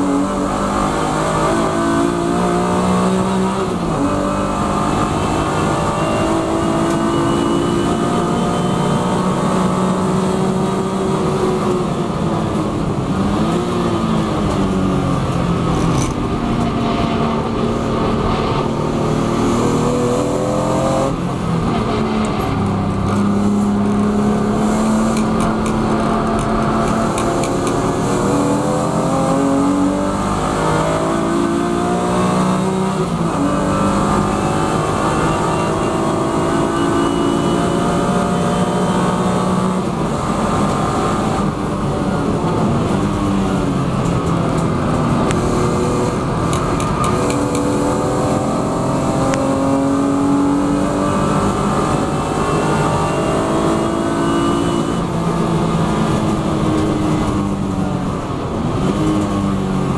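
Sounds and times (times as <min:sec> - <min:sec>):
racing car engine at full throttle: 0:00.0 - 0:59.9
tyre and wind noise: 0:39.0 - 0:59.9.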